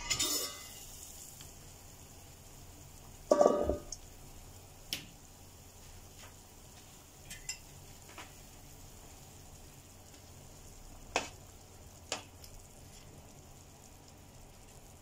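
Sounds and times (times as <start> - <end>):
pot lid metallic clatter: 0.0 - 0.8, 3.3 - 3.9
soup simmering bubbling: 0.9 - 15.0.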